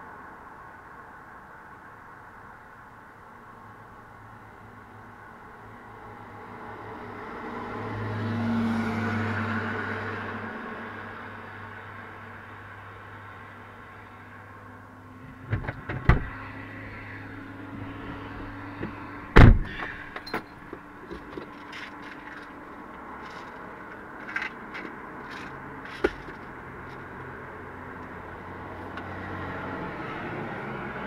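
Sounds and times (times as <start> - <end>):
sharp knocks and thumps: 15.3 - 16.4, 24.2 - 26.5
car engine running: 20.6 - 27.2.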